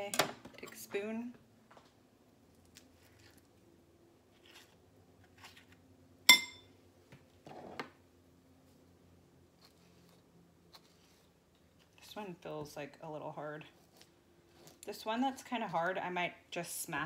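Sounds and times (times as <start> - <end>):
spoon clinking glass bowl: 6.3 - 6.7.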